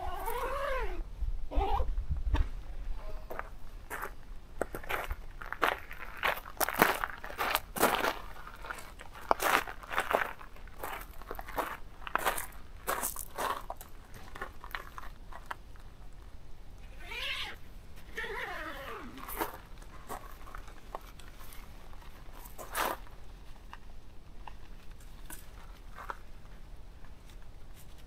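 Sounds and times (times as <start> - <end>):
tent handling noise: 0.0 - 1.0
footsteps crunching on gravel: 3.3 - 15.9, 18.0 - 27.9.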